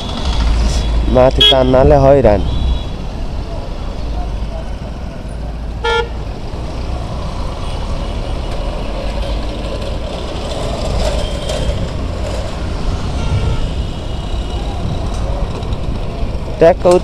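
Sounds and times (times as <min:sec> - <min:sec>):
wind and road noise: 0:00.0 - 0:17.0
distant vehicle horn toots: 0:05.8 - 0:06.2, 0:13.1 - 0:13.9.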